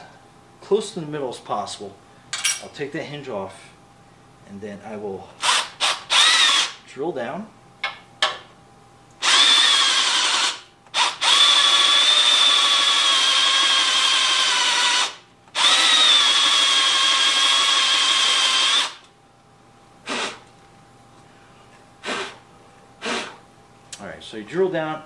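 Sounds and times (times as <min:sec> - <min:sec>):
cordless drill whining into wood: 0:05.4 - 0:06.7, 0:09.2 - 0:19.0.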